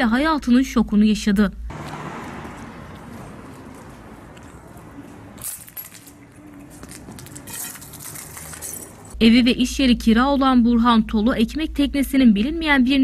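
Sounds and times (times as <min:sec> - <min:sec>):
light clinking and rattling: 0:03.1 - 0:09.2.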